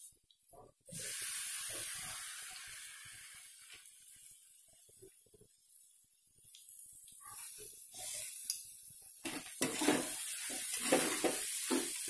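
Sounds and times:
food sizzling in a hot pan: 0.8s - 12.0s
metal spatula scraping pan: 9.3s - 12.0s.

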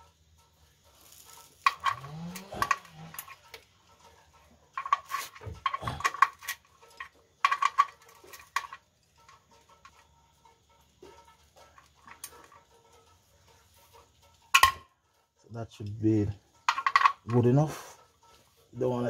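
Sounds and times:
metal wrench clicking and clinking: 0.9s - 13.2s, 13.8s - 14.9s, 16.5s - 17.6s.

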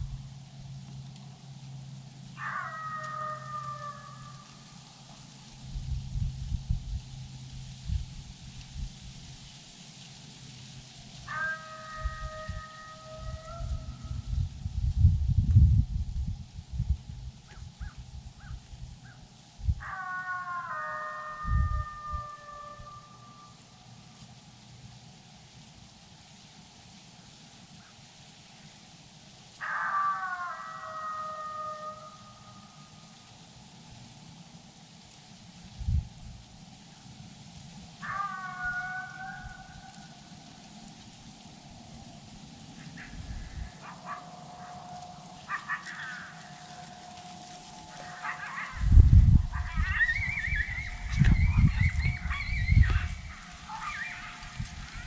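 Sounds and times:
coyotes howling: 2.3s - 5.2s, 11.2s - 14.4s, 17.5s - 23.8s, 29.5s - 33.3s, 38.0s - 55.0s
wind buffeting microphone: 5.6s - 9.4s, 11.3s - 20.0s, 21.4s - 22.4s, 35.7s - 36.4s, 41.7s - 55.0s.

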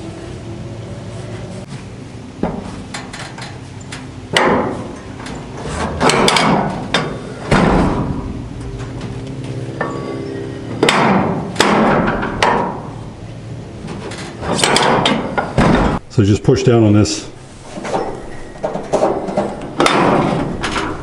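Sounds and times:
metal knocks and clanks: 2.4s - 13.1s, 13.8s - 16.1s, 17.7s - 21.0s.

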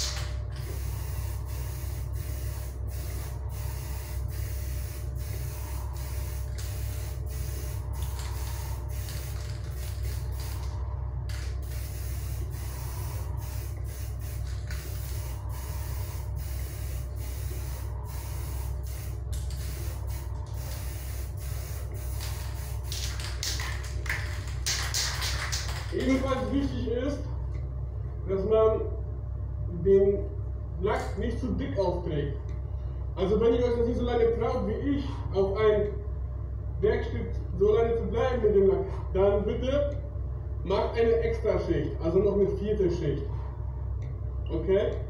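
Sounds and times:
aerosol spray can hissing: 0.0s - 23.2s
extraction fan humming: 0.0s - 45.0s.

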